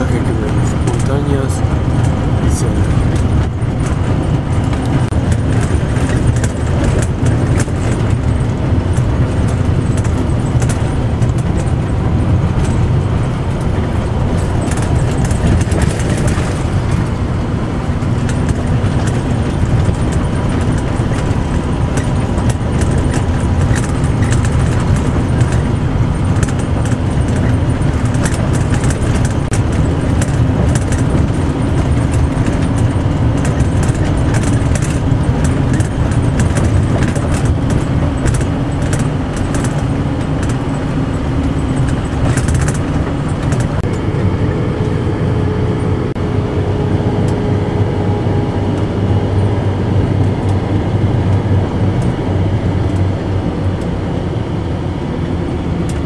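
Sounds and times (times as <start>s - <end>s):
rattles and clicks: 0.0s - 46.2s, 47.1s - 54.0s
vehicle interior rumble: 0.0s - 56.0s.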